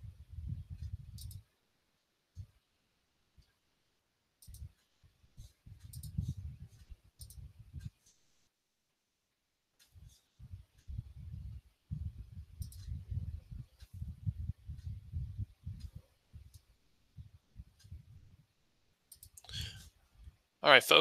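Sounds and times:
computer mouse clicking: 0:00.8 - 0:01.4, 0:04.4 - 0:07.9, 0:12.6 - 0:13.0, 0:19.1 - 0:19.5.

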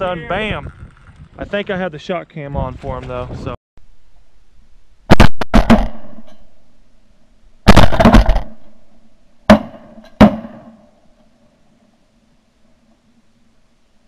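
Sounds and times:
shotgun blasts: 0:05.1 - 0:06.4, 0:07.6 - 0:08.8, 0:09.5 - 0:10.8.

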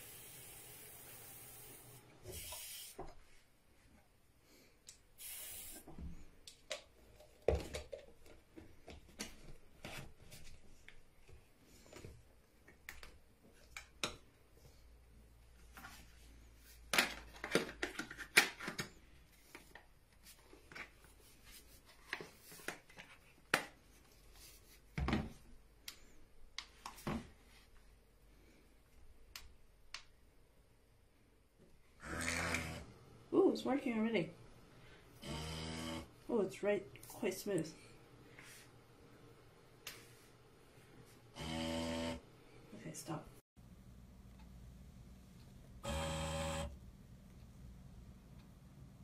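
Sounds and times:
soap dispenser hiss: 0:00.0 - 0:03.2, 0:05.1 - 0:06.0.

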